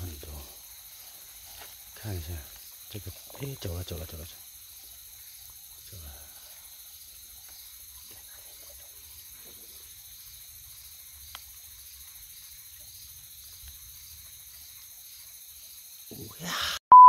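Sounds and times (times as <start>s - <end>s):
insects trilling: 0.0s - 16.8s.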